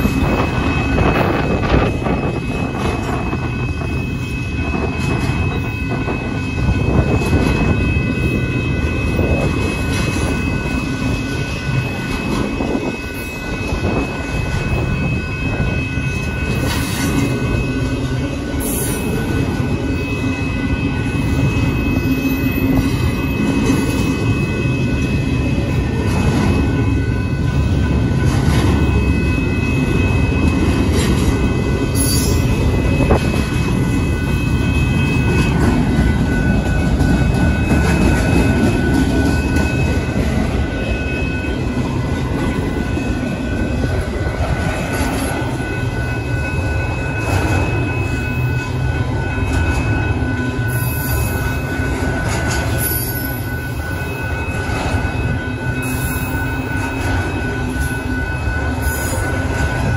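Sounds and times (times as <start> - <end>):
train wheels rumbling on rails: 0.0 - 59.9
high-pitched wheel squeal: 31.4 - 44.1, 44.7 - 59.9.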